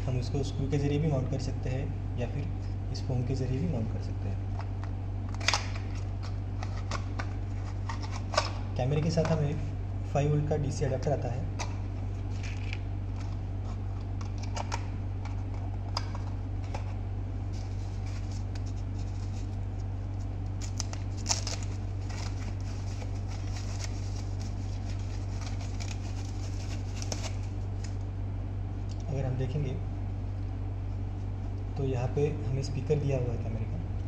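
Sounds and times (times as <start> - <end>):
steady low hum: 0.0 - 34.0
packing wrap rustling: 20.5 - 28.0.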